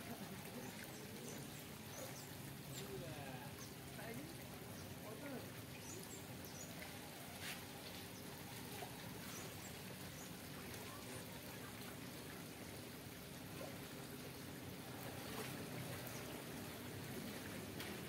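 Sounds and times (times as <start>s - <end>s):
faint distant voices: 0.0s - 12.5s.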